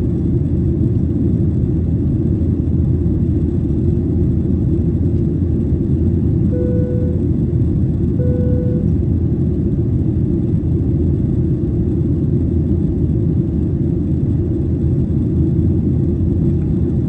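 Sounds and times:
jet airliner cabin rumble: 0.0 - 17.0.

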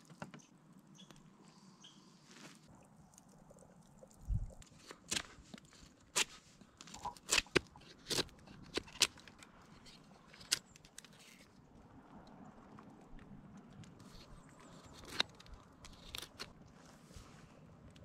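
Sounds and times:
knife carving wood: 4.6 - 11.4, 14.0 - 16.5.

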